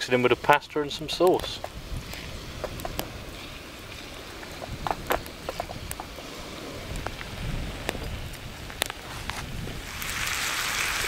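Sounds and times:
meat sizzling in a frying pan: 0:09.8 - 0:11.0.

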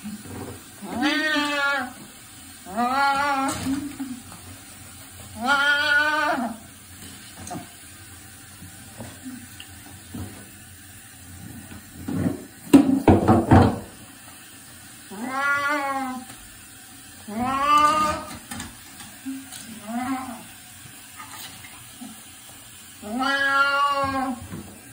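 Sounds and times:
wet cat meowing: 0:00.8 - 0:04.1, 0:05.3 - 0:06.6, 0:15.1 - 0:16.4, 0:17.2 - 0:18.5, 0:19.3 - 0:20.6, 0:23.0 - 0:24.5
noisy burst with knocks: 0:12.1 - 0:14.0.

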